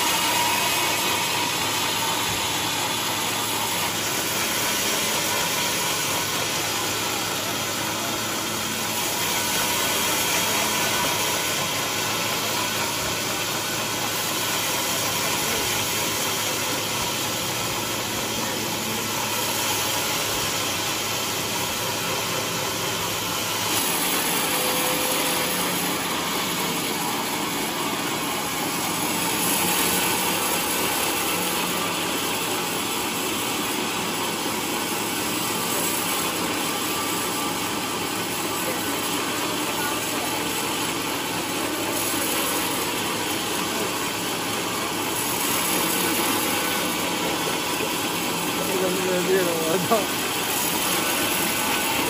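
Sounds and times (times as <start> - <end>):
band saw cutting log: 0.0 - 52.0.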